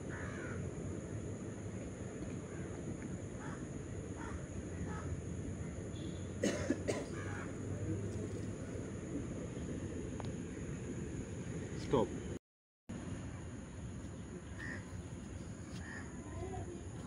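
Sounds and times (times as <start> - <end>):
faint crow caws: 0.0 - 0.7, 2.4 - 2.8, 3.4 - 6.1, 7.0 - 7.7, 14.5 - 15.0, 15.7 - 16.4
outdoor background noise: 0.0 - 17.0
person coughing: 6.4 - 7.2.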